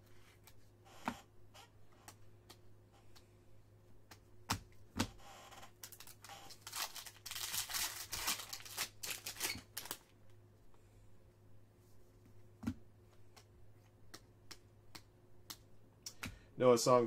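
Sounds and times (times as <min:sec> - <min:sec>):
foil wrapper tearing and crinkling: 0:05.8 - 0:10.0.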